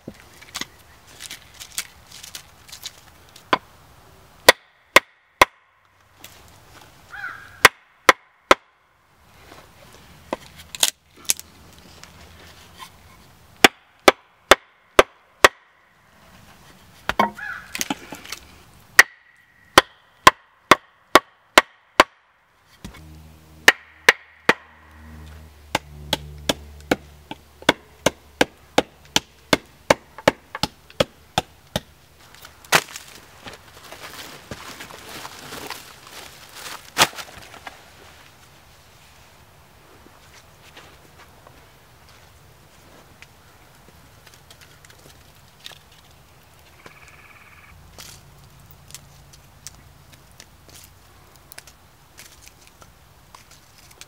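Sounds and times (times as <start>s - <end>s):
axe chopping wood: 4.4s - 5.6s, 7.6s - 8.7s, 13.6s - 15.7s, 17.0s - 18.0s, 19.0s - 22.2s, 22.8s - 31.9s.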